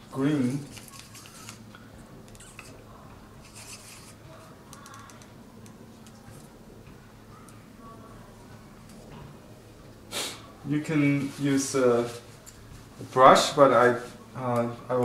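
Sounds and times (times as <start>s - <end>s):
low steady hum: 0.0s - 15.0s
soft rustles: 11.0s - 14.3s.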